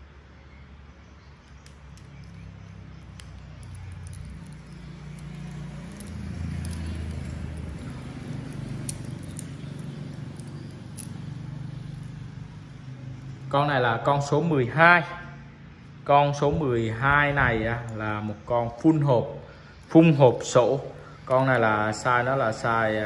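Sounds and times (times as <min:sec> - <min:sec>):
small metallic clicks and taps: 0:01.4 - 0:12.2.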